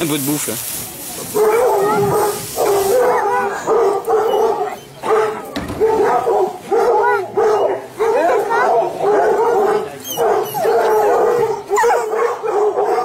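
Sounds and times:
hose spraying water: 0.0s - 4.7s
hounds baying and whining: 1.3s - 13.0s.

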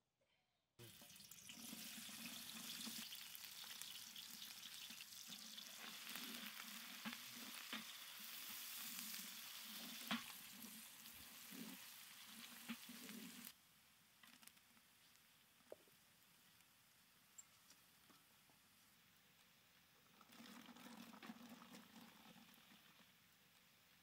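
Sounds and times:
onions sizzling in hot oil: 0.8s - 13.5s.

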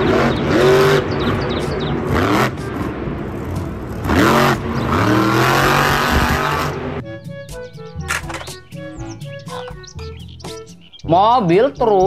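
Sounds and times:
monster truck engine revving: 0.0s - 7.0s.

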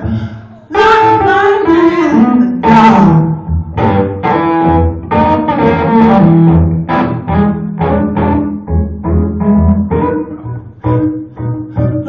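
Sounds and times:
electric guitar blues riff: 0.0s - 12.0s.

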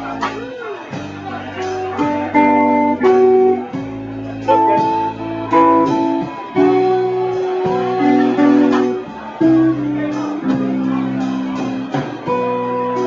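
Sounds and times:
guitar chords ringing: 1.7s - 13.0s.

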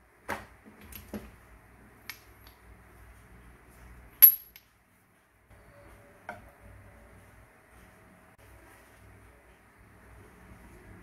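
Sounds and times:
ringing metallic clink: 4.2s - 4.7s.

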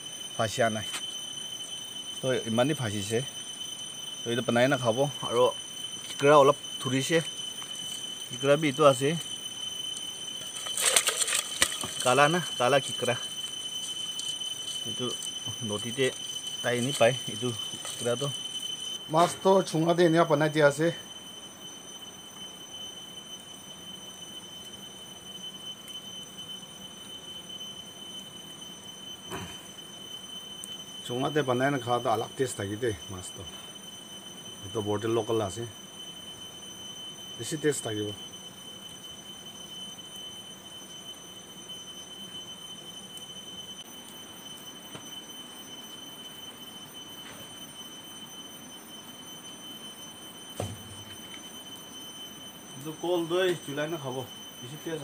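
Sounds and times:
fire crackle: 0.0s - 55.0s
high-pitched whine: 0.0s - 55.0s
wood fire hissing: 0.0s - 55.0s
high-pitched tone: 10.4s - 21.0s
short thump: 50.6s - 51.0s.

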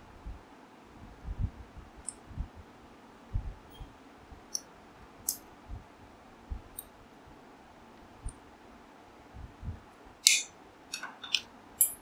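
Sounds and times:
small metal clicks: 10.2s - 12.0s.

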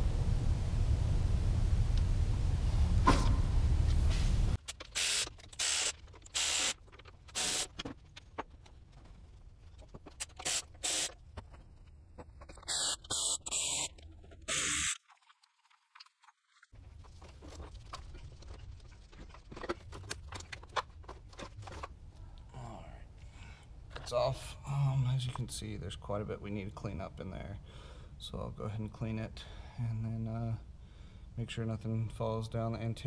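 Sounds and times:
short hissing bursts: 10.4s - 11.2s, 12.7s - 13.9s, 14.5s - 15.0s.

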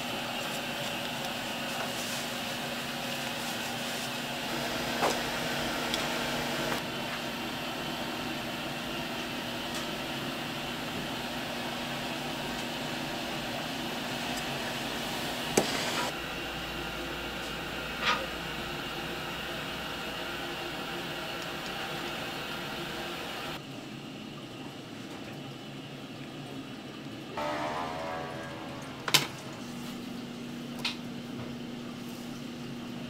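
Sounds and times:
machine hum: 4.0s - 23.6s, 27.3s - 32.0s.

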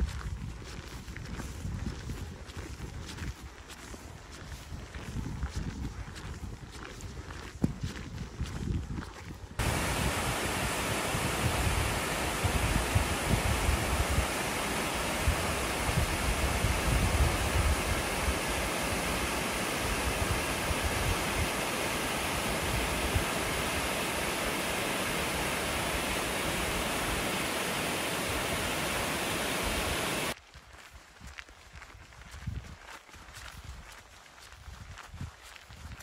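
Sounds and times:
waterfall rushing: 9.6s - 30.4s.

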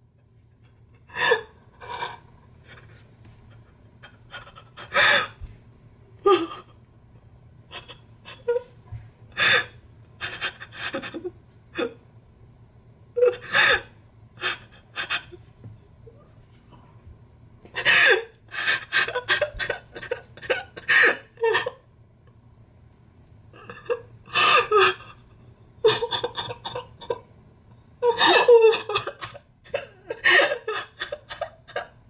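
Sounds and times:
man sobbing and gasping: 25.8s - 27.2s, 28.0s - 31.9s.

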